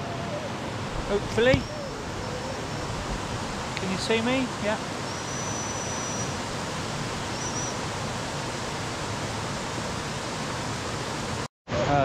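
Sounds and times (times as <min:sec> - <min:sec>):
water rushing over weir: 0:00.0 - 0:12.0
faint high whistle: 0:05.1 - 0:06.3, 0:07.3 - 0:07.8.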